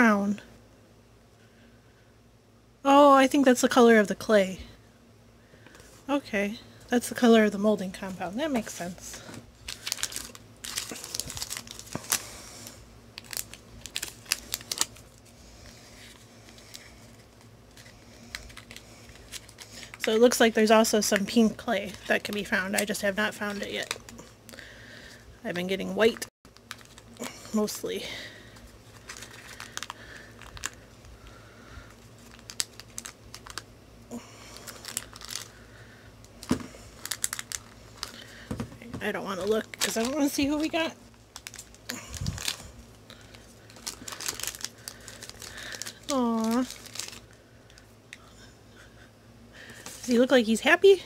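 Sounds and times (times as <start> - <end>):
crinkle: 7.9 - 25.2, 26.1 - 38.6, 39.3 - 48.4.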